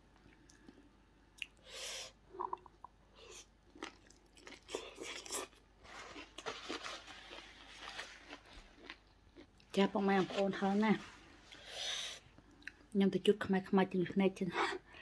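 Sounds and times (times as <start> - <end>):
chewing and crunching food: 0.1 - 1.6, 2.4 - 11.7.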